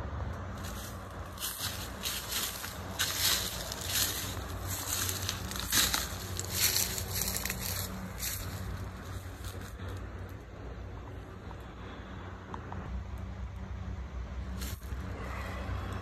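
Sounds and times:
steady low hum: 0.0s - 16.0s
footsteps crunching through dry leaves: 0.6s - 10.0s, 14.5s - 15.2s.

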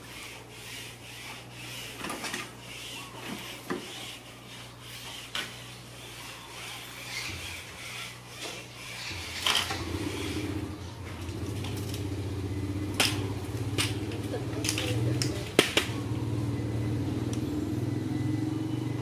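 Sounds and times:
scratching on wood and brick: 0.0s - 12.0s.

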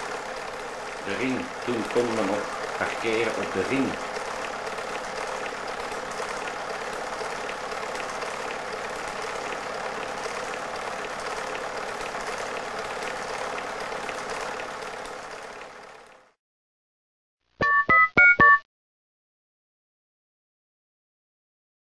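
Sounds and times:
film projector whirring: 0.0s - 16.4s.

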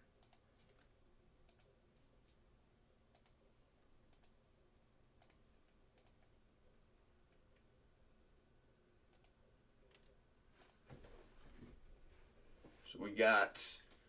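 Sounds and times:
faint computer clicks: 3.1s - 3.4s, 5.2s - 5.4s.

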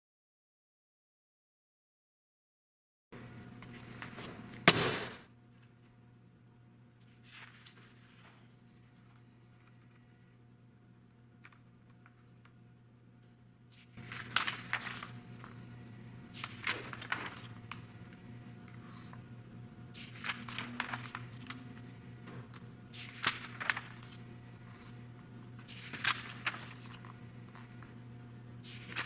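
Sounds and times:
steady low hum: 3.2s - 29.0s
magazine pages turning: 7.0s - 10.2s, 11.4s - 12.6s, 13.7s - 15.7s, 16.3s - 19.2s, 20.0s - 28.0s, 28.6s - 29.0s.

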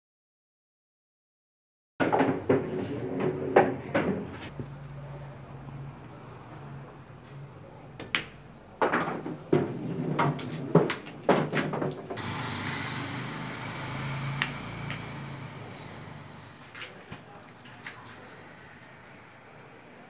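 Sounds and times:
pool balls colliding: 2.0s - 4.5s, 8.0s - 16.5s
cue striking ball: 14.3s - 15.4s.

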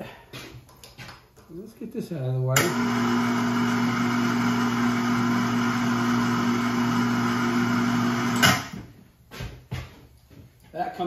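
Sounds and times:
electric hoist motor humming: 2.6s - 8.8s.

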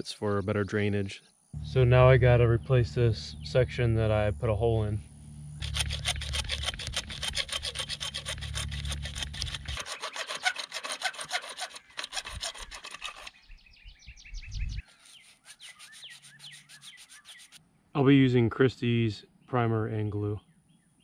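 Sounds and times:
hacksaw cutting plastic pipe: 5.6s - 13.4s, 14.9s - 17.6s.

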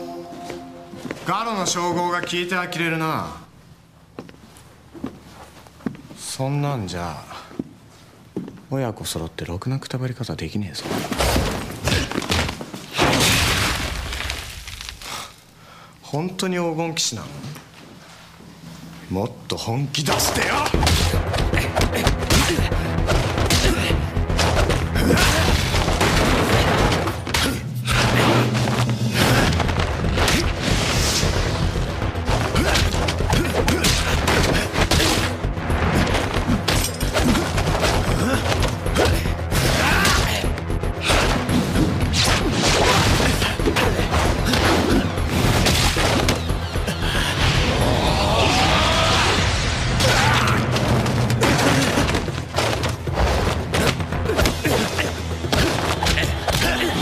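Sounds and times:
dramatic background music: 0.0s - 2.6s, 20.0s - 57.0s.

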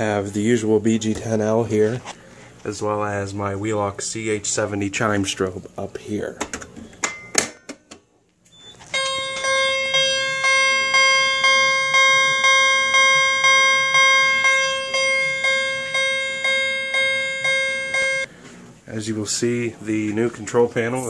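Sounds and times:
fire alarm chime: 8.5s - 18.3s
fire alarm pull station clicks: 8.8s - 18.3s.

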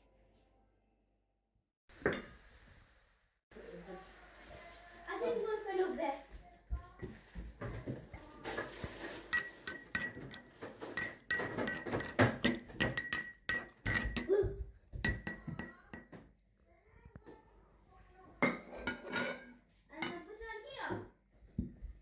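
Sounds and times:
pestle clinking in metal mortar: 11.0s - 14.3s.

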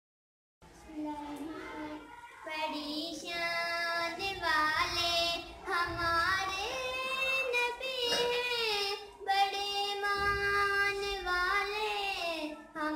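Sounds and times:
girl singing: 1.0s - 12.9s.

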